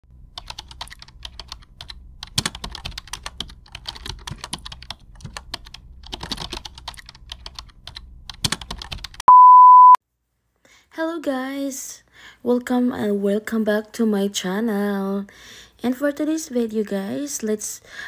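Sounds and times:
loud steady beep: 9.3s - 10.0s.

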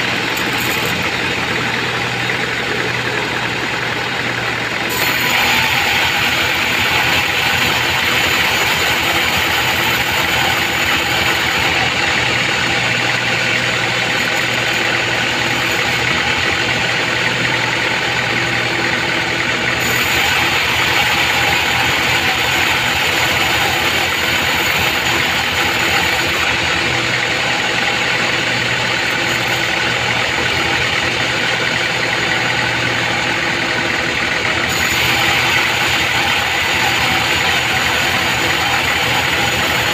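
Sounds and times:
band saw ripping wood: 4.9s - 12.1s, 13.4s - 16.3s, 19.8s - 26.5s, 34.7s - 39.9s.

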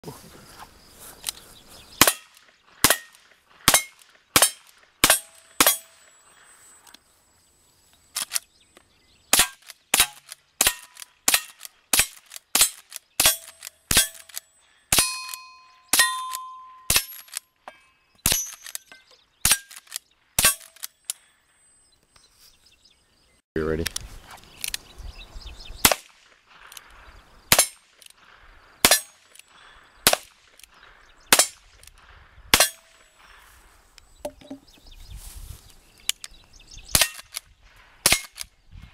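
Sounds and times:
revolver gunshots: 2.0s - 6.1s, 25.8s - 33.3s
rifle gunshots: 2.0s - 6.1s, 25.8s - 33.4s
steel targets ringing: 14.9s - 19.7s.

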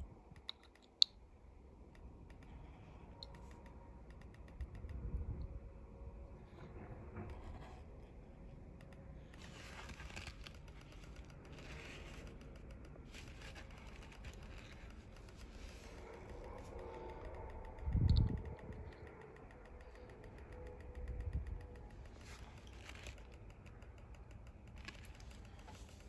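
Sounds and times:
tweezers scraping and rustling: 8.9s - 20.7s.

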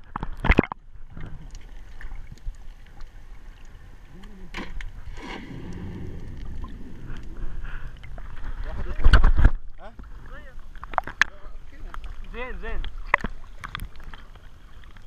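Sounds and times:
water sloshing around camera housing: 0.0s - 3.1s, 4.6s - 15.0s
faint underwater clicks: 0.0s - 15.0s.

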